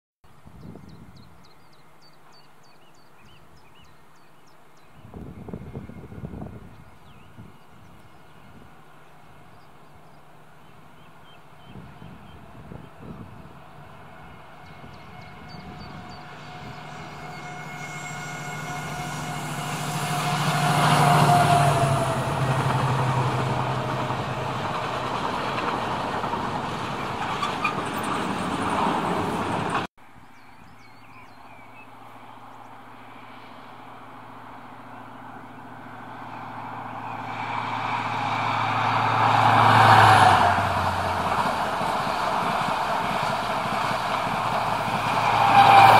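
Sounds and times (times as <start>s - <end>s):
diesel locomotive passing: 4.5s - 29.9s, 31.2s - 45.9s
passenger train passing: 4.6s - 29.9s, 31.8s - 45.9s
tank wagons rumbling on rails: 15.6s - 29.9s.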